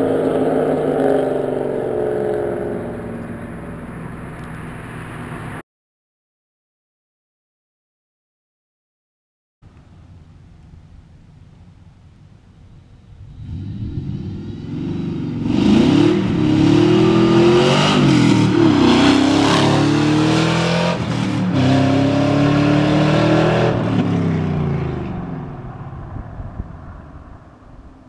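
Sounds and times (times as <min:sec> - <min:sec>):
car engine accelerating hard: 0:00.0 - 0:05.6, 0:13.2 - 0:27.3.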